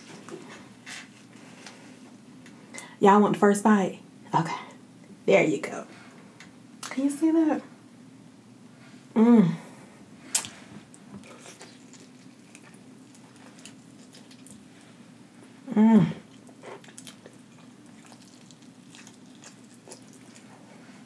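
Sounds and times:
person humming mm: 0:09.1 - 0:09.7, 0:15.6 - 0:16.4
wet chewing smacks: 0:10.3 - 0:14.9, 0:16.3 - 0:20.8.

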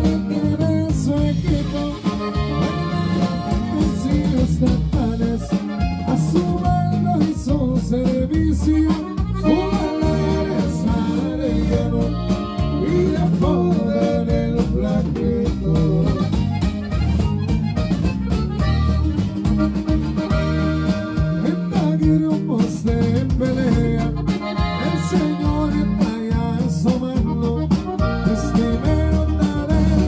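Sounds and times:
button accordion melody: 0:00.0 - 0:30.0
drum kit beat: 0:00.0 - 0:30.0
strummed guitar: 0:00.0 - 0:30.0.

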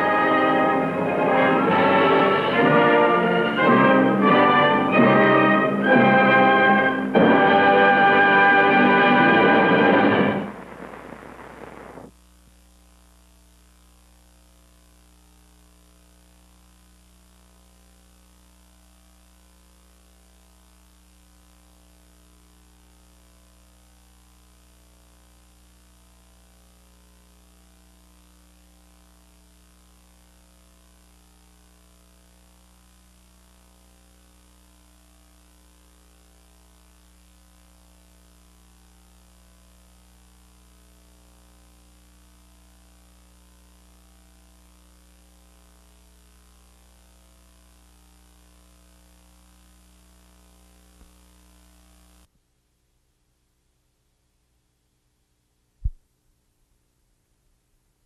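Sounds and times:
low hiss: 0:00.0 - 0:12.1
faint electrical hum: 0:00.0 - 0:58.0.

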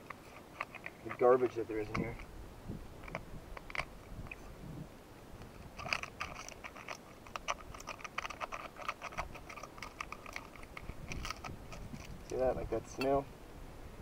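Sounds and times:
hand tool scraping in rock: 0:00.0 - 0:02.2, 0:05.5 - 0:13.1.

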